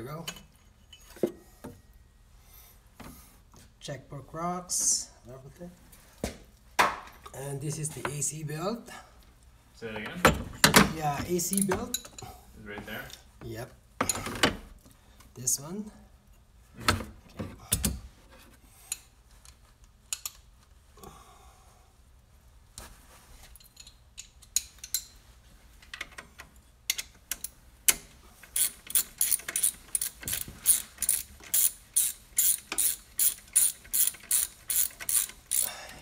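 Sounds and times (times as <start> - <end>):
socket ratchet clicking: 28.5 - 35.7.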